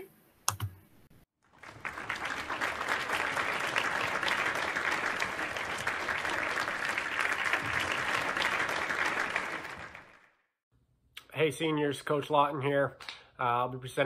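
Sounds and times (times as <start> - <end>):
crowd applause: 1.5 - 10.4.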